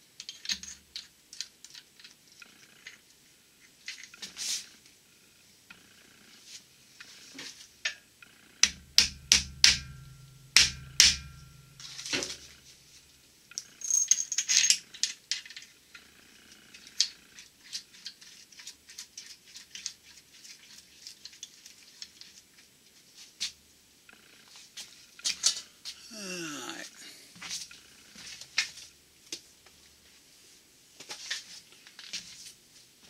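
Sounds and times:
sharp metal knocks on engine block: 8.6s - 11.4s.

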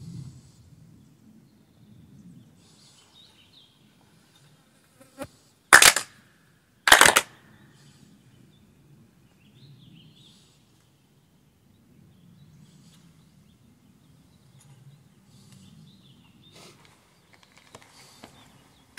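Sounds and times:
sharp hand claps: 5.7s - 6.1s, 6.9s - 7.3s.

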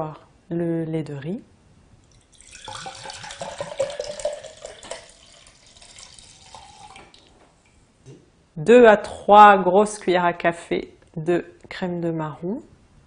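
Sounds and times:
liquid pouring into blender jar: 2.1s - 7.3s.

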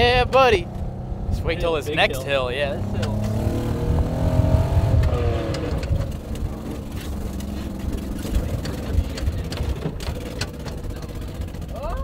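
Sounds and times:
truck engine rumbling under load: 0.0s - 12.0s
clicks and rattles: 5.0s - 11.8s.

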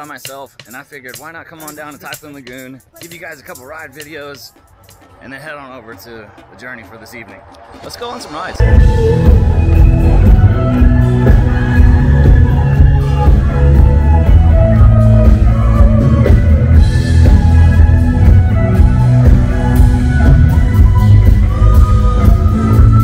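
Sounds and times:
loud rock music: 8.6s - 23.0s.

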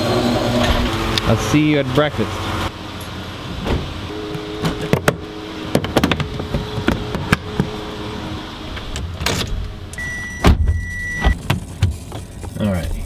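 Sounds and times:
car handling clicks and knocks: 3.6s - 7.8s
steady high car beep: 4.1s - 6.8s, 10.0s - 11.4s.

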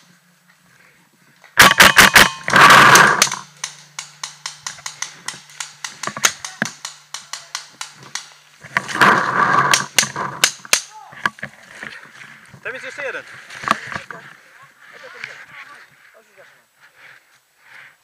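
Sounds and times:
paintball markers firing: 1.6s - 10.9s.

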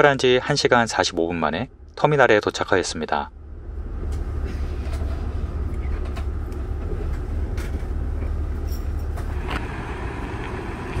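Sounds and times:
bus engines idling: 3.3s - 11.0s.

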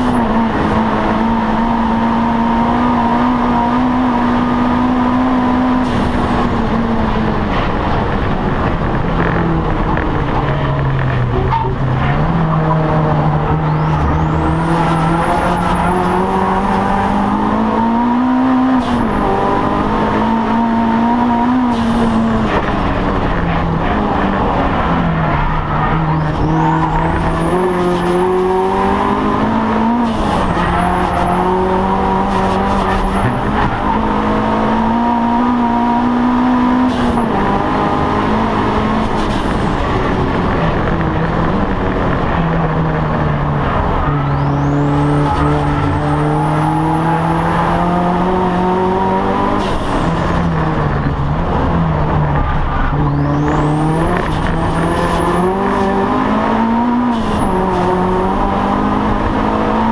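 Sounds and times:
high engine whine: 0.0s - 59.9s
race car engine revving: 0.0s - 59.9s.

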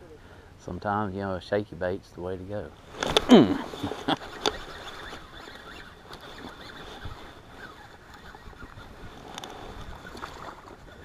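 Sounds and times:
wind buffeting microphone: 2.8s - 11.0s
faint clicks: 4.1s - 10.7s.

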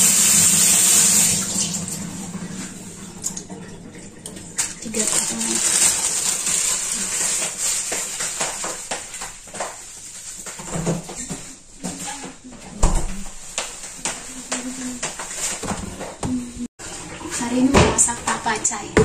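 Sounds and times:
running water or rustling bag: 0.0s - 12.4s.

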